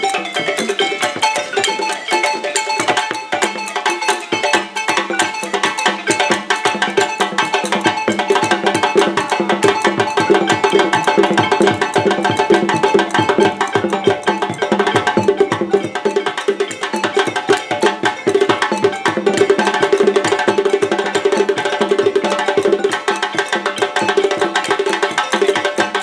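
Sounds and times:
balafon wooden keys: 0.0 - 26.0
hand drums: 0.0 - 26.0.

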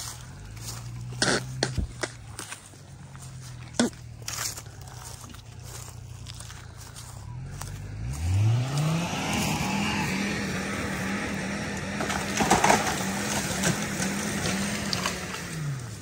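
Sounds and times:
engine revving hard: 7.4 - 16.0.

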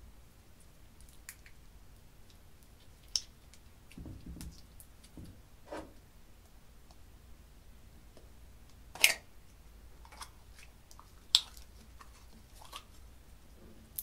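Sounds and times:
slime squishing: 10.0 - 13.1.

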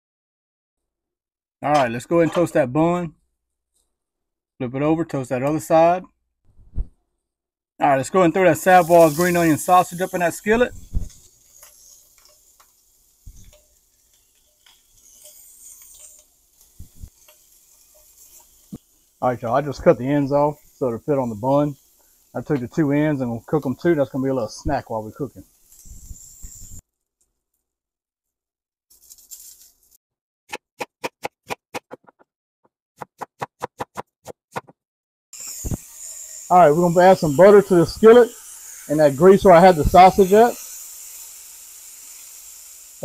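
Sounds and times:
sausage sizzling in a skillet: 7.9 - 26.8, 35.4 - 43.0
knife chopping onion on wooden board: 30.5 - 32.3, 33.0 - 34.8.

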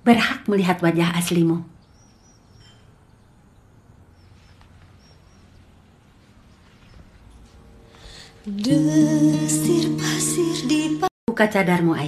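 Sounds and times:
soft hiss: 4.2 - 10.9.

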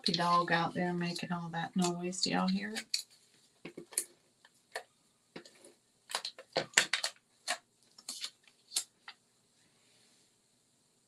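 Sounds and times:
clicks of craft pieces handled: 5.4 - 9.2
faint hiss: 7.2 - 11.0.

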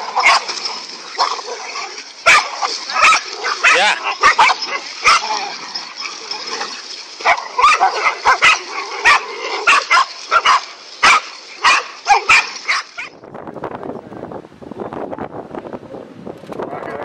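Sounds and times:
dogs barking: 0.0 - 13.2.

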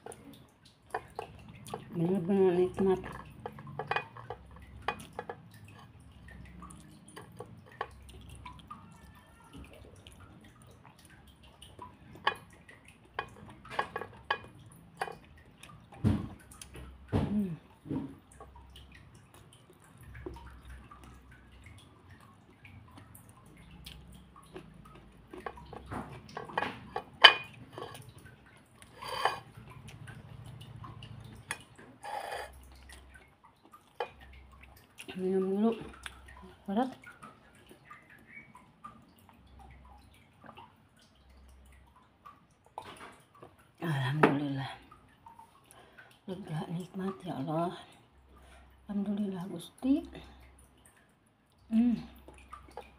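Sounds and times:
wet smacking and chewing: 2.7 - 41.2.

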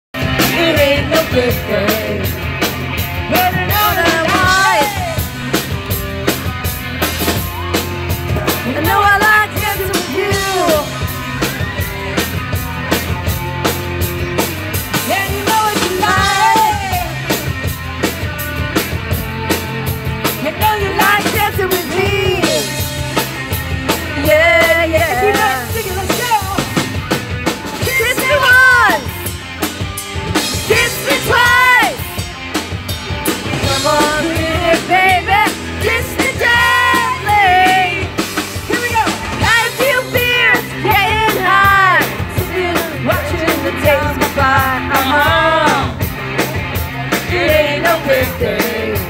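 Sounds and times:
drum kit beat: 0.1 - 49.0
woman singing lead: 0.2 - 2.4, 3.2 - 5.5, 8.5 - 11.0, 14.9 - 17.3, 20.2 - 22.8, 23.9 - 26.7, 30.5 - 32.0, 33.6 - 46.1, 47.1 - 49.0
electric guitars: 0.2 - 49.0.

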